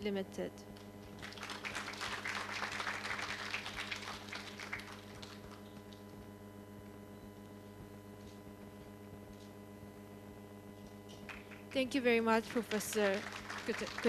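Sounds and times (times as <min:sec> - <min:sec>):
steady low hum: 0:00.0 - 0:14.0
audience applauding: 0:01.1 - 0:06.0, 0:11.3 - 0:11.8, 0:12.4 - 0:14.0.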